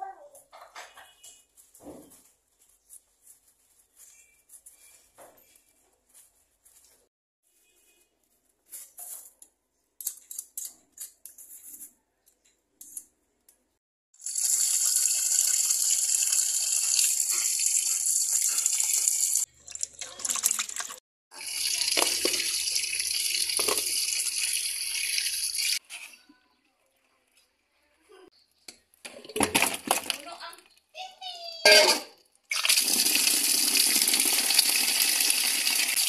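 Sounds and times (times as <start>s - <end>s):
handling knocks and rustles: 0.4s - 9.6s
tap water running into pot: 14.2s - 25.8s, 32.5s - 36.0s
pot clattering: 31.7s - 32.2s.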